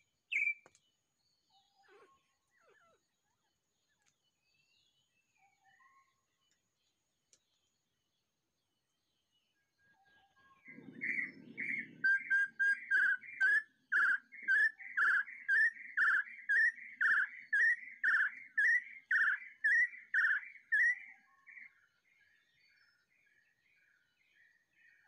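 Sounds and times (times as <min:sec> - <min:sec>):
bird whistling upward notes: 0:00.3 - 0:00.6, 0:10.7 - 0:21.2.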